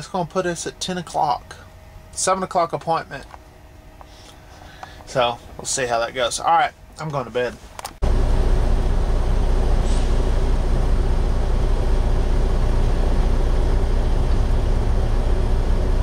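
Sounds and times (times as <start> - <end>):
diesel truck engine rumbling: 8.0 - 16.0.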